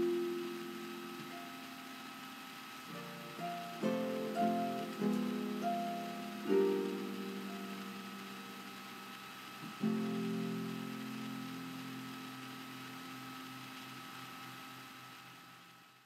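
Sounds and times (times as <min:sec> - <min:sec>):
harp chords ringing: 0:02.9 - 0:08.7.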